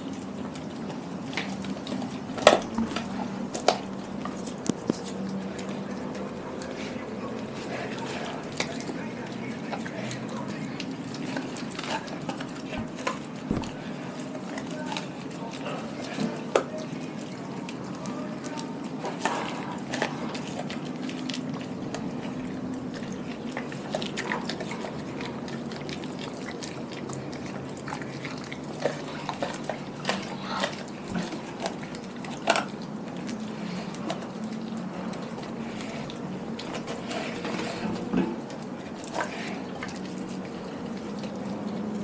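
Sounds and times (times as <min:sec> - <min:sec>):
dog chewing wet smacking: 0:00.0 - 0:42.0
bones crunching: 0:02.3 - 0:05.7, 0:11.5 - 0:14.0.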